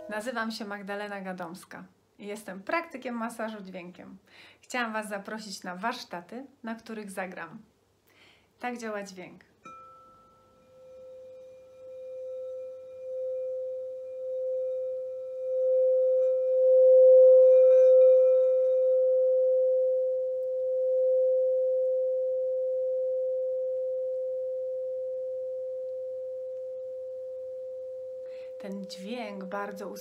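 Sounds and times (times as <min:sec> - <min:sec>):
singing bowl tone: 0:00.0 - 0:00.5, 0:09.6 - 0:30.0.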